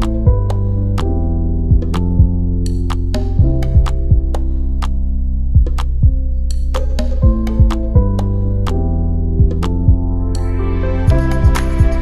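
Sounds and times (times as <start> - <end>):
low synth and bass notes: 0.0 - 12.0
beat of deep thuds: 1.7 - 10.1.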